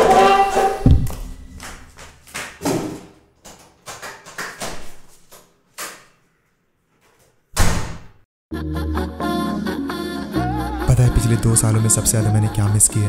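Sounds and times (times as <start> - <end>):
footsteps: 0.0 - 5.5
loud thump: 0.8 - 1.4, 7.6 - 8.2.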